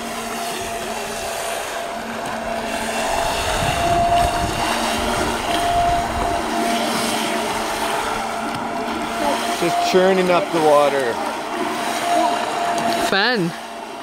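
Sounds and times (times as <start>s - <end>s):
toy boat motor whine: 0.0s - 14.0s
water churning: 0.0s - 14.0s
wind rumble on microphone: 0.6s - 9.2s.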